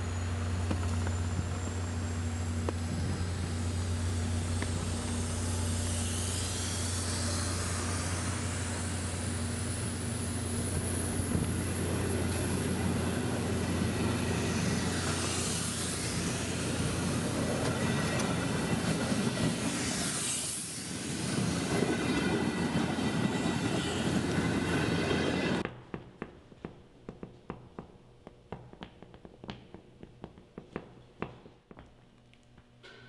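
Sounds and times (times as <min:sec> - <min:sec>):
rushing rail noise: 0:00.0 - 0:25.6
train low hum: 0:00.0 - 0:25.7.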